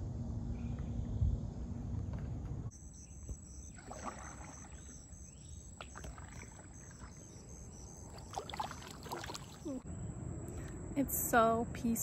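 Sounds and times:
insects chirping: 0:00.5 - 0:12.0
paddle splashing in water: 0:03.6 - 0:09.8.

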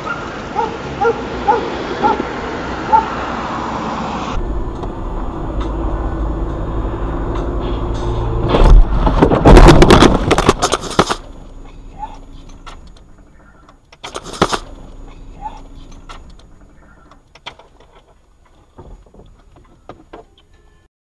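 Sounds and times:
steady engine hum: 0:00.0 - 0:20.1
car crash impact and clattering: 0:07.4 - 0:11.4, 0:12.3 - 0:17.8.

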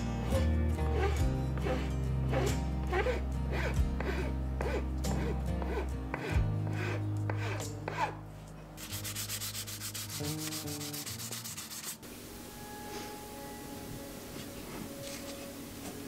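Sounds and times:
sandpaper rubbing on wood: 0:01.0 - 0:08.1, 0:08.8 - 0:12.0.

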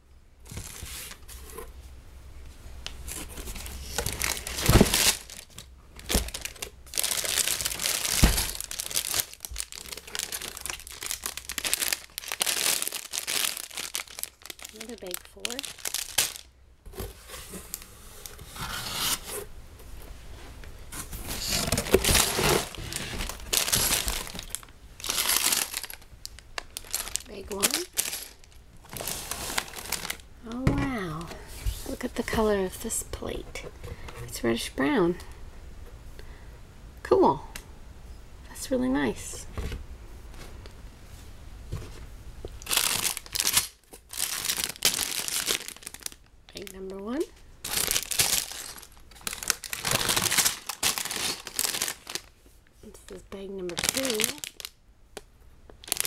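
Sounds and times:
plastic bags crinkling: 0:02.9 - 0:18.5, 0:21.1 - 0:31.0, 0:42.5 - 0:52.4, 0:53.0 - 0:56.0.

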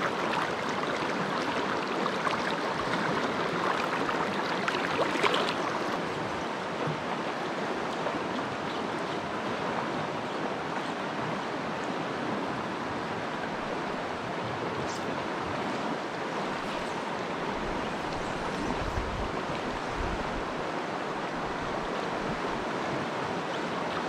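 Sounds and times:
splashing in shallow water: 0:00.0 - 0:07.1
stream rushing over riffles: 0:00.0 - 0:24.0.

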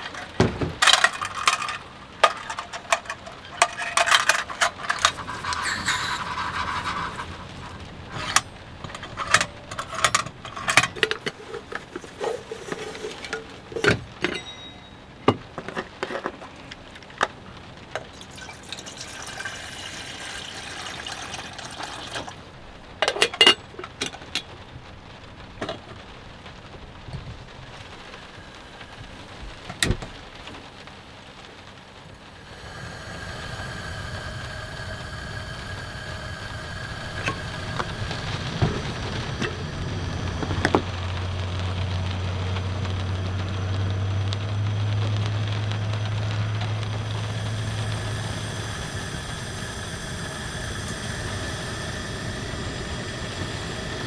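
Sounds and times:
water pouring into metal kettle: 0:00.0 - 0:14.6, 0:18.0 - 0:24.4, 0:32.2 - 0:54.0
camp stove clicks and clinks: 0:00.0 - 0:16.4, 0:23.0 - 0:24.5, 0:32.5 - 0:39.6.

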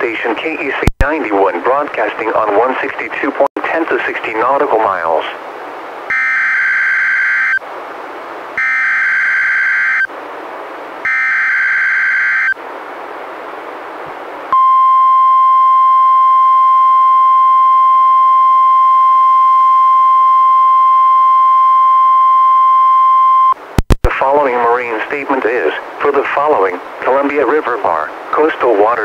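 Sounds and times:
single-pitch warning alarm tone: 0:06.1 - 0:07.6, 0:08.6 - 0:10.1, 0:11.0 - 0:12.6.

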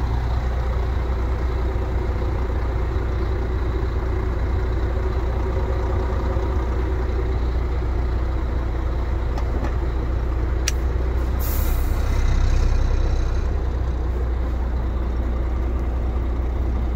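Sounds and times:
diesel truck engine idling: 0:00.0 - 0:16.9
compressed air hiss: 0:11.4 - 0:12.1.

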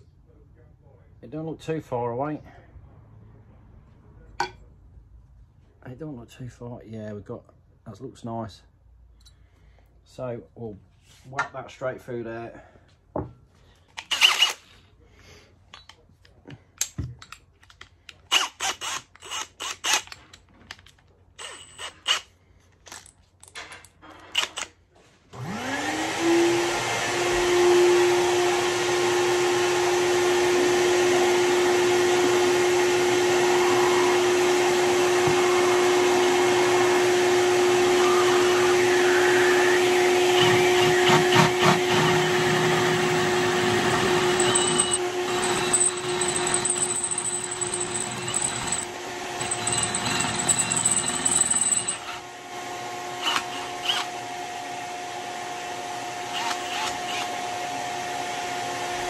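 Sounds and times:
drill bit rattling: 0:14.0 - 0:14.6, 0:40.4 - 0:52.2, 0:53.2 - 0:54.0, 0:56.4 - 0:57.3
cordless drill whining: 0:14.0 - 0:14.7, 0:21.4 - 0:22.3, 0:25.4 - 0:52.3, 0:53.1 - 0:54.3, 0:56.2 - 0:57.6.

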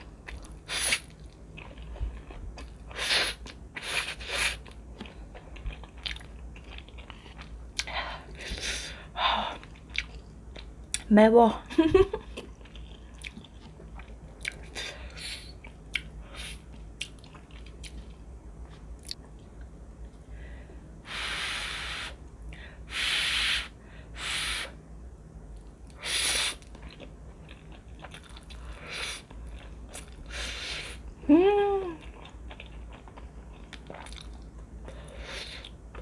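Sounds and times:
soft chewing with mouth clicks: 0:00.0 - 0:08.6, 0:09.5 - 0:11.1, 0:12.2 - 0:20.3, 0:25.6 - 0:30.4, 0:31.8 - 0:36.0.

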